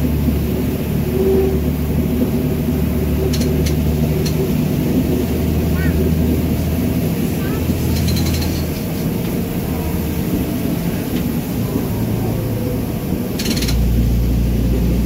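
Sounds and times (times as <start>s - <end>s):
diesel engine drone: 0.0s - 15.0s
wheel and rail noise: 0.0s - 15.0s
rattle of clicks: 3.3s - 4.4s, 7.9s - 9.4s, 13.4s - 14.0s.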